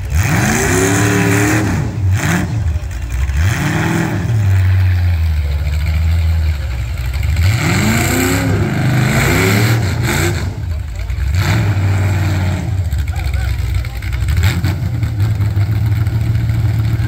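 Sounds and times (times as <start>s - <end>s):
car engine revving hard: 0.0s - 17.0s.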